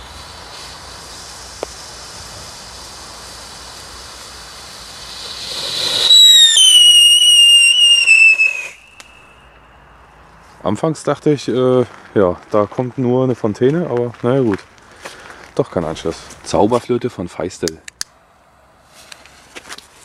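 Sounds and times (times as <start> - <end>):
burning fuse hiss: 0.0 - 9.8, 13.5 - 16.9
firework fountain hissing: 0.0 - 9.8, 14.6 - 16.8
shrill firework whistle: 3.6 - 9.8.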